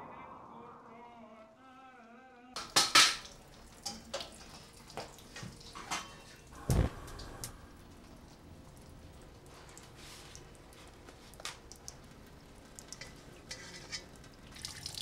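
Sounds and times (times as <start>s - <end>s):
pots and utensils clanking: 2.6s - 6.6s, 12.8s - 14.4s.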